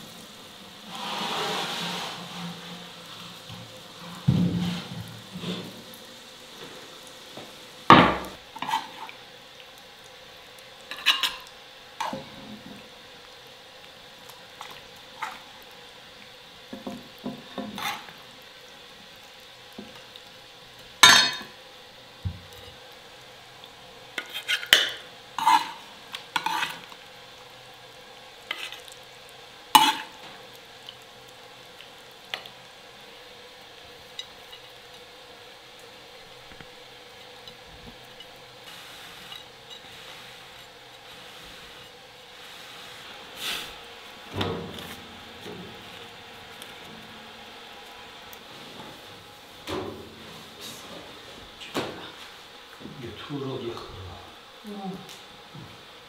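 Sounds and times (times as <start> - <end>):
metal utensils clinking on dishes: 10.9 - 12.2, 21.0 - 21.6.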